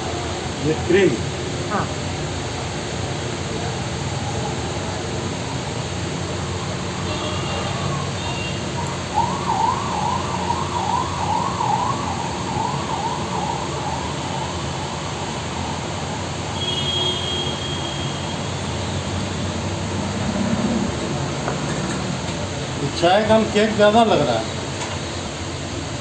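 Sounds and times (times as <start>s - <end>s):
road traffic noise: 0.0s - 26.0s
emergency siren wailing: 6.2s - 17.2s.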